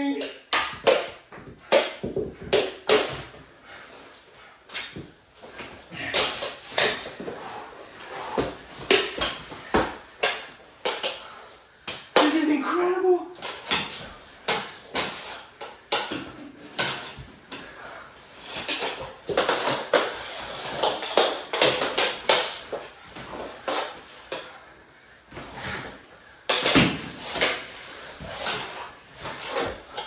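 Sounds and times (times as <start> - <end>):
plastic hockey sticks clacking: 0.0 - 30.0.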